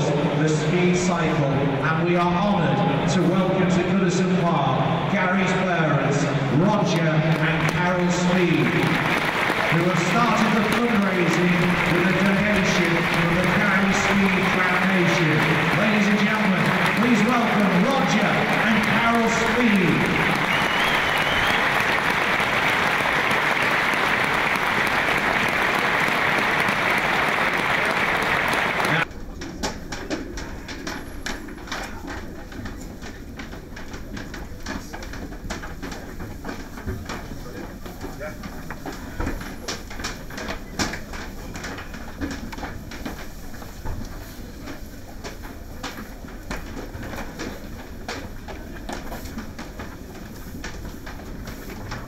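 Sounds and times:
low background noise: 0.0 - 52.0
stadium crowd applauding: 6.7 - 29.1.

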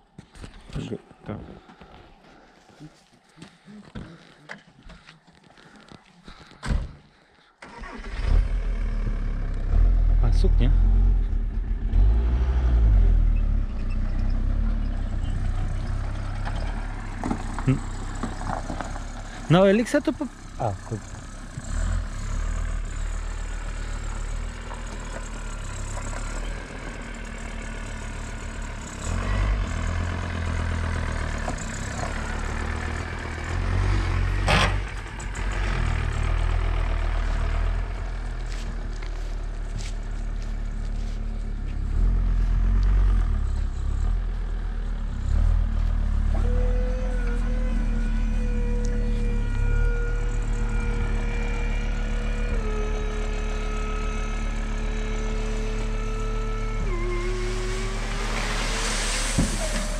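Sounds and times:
truck engine revving: 7.6 - 59.9
hydraulic whine: 46.3 - 59.9.

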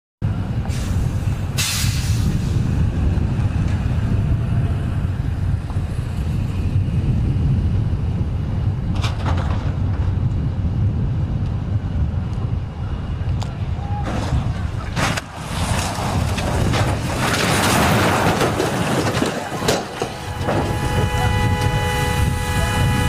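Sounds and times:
highway traffic rumble: 0.2 - 23.0
brief hiss: 1.6 - 2.6.

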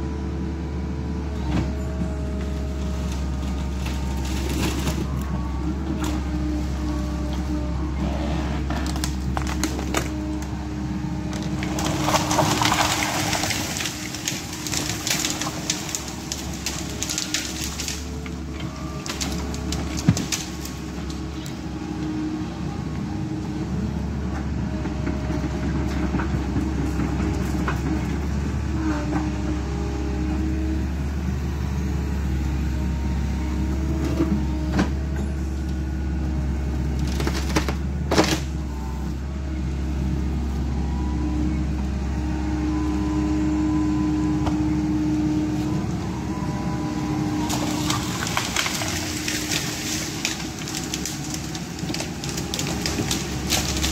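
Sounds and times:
excavator engine and hydraulics: 0.0 - 53.9
wood and branches cracking: 2.9 - 7.4, 8.7 - 10.5, 11.2 - 21.6, 36.9 - 38.6, 47.3 - 53.9.

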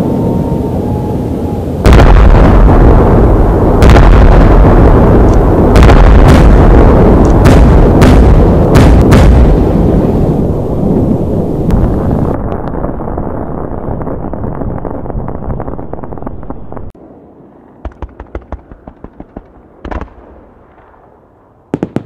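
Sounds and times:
low rumble: 0.0 - 17.2
fireworks heavy boom: 1.8 - 17.0, 17.8 - 22.0
fireworks sharp cracks: 3.7 - 10.3, 17.8 - 22.0.

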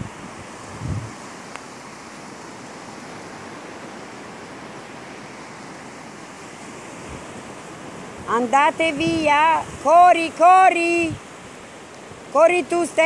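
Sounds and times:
waves breaking on a beach: 0.0 - 13.0.

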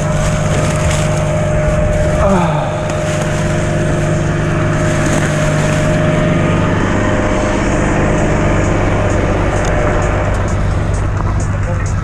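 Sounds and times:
bicycle tyre rumble: 0.0 - 12.0
truck engine idling: 0.0 - 12.0
wind: 0.0 - 12.0.

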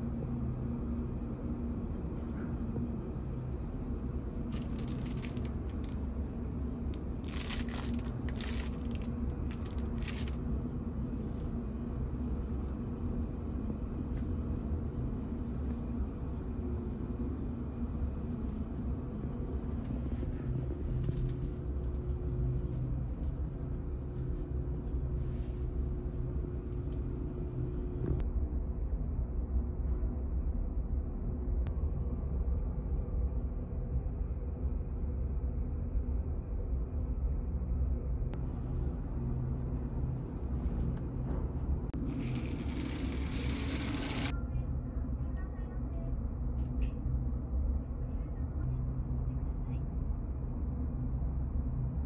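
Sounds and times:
ship machinery hum: 0.0 - 28.2, 37.7 - 44.4
crinkles and rustles: 4.5 - 6.0, 7.2 - 10.4.

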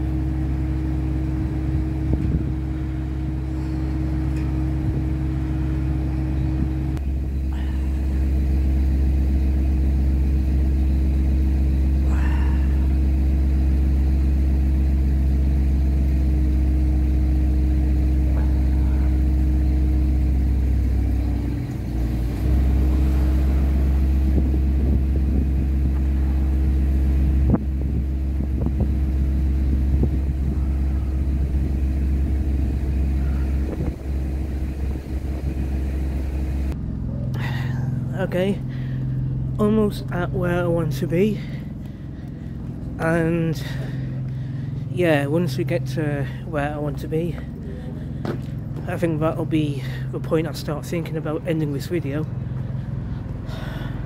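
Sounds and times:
motor droning: 0.0 - 54.0.

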